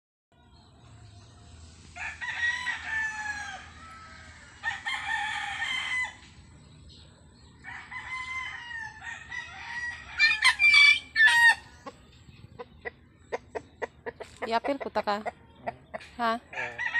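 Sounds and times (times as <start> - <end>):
roosters crowing: 1.9 - 6.4, 7.6 - 11.9, 13.6 - 16.9.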